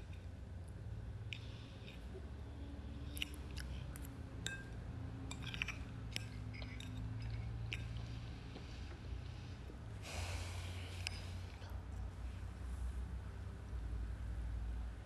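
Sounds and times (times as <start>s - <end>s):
low steady hum: 0.0s - 15.0s
small objects clicking and scraping: 5.3s - 8.0s.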